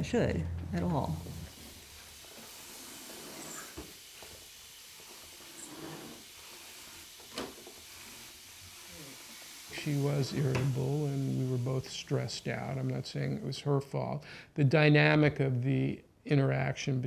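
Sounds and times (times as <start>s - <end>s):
steady hiss: 1.0s - 14.6s.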